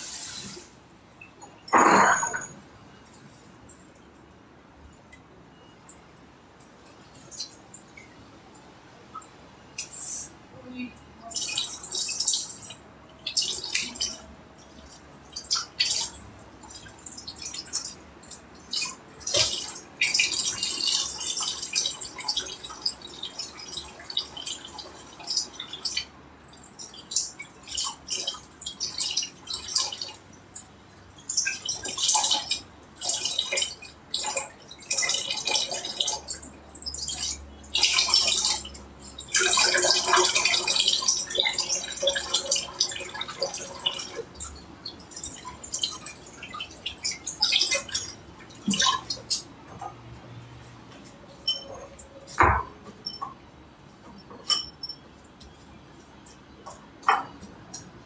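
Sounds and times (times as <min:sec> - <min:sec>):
tap water splashing in sink: 0:15.4 - 0:26.0, 0:39.2 - 0:49.9, 0:52.3 - 0:53.3.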